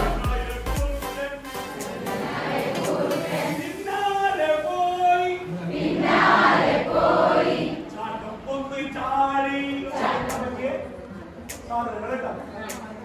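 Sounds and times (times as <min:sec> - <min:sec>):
group singing a chant: 0:01.7 - 0:03.9, 0:05.4 - 0:08.4, 0:09.7 - 0:10.9
voices rising in a ragged burst: 0:01.8 - 0:08.6.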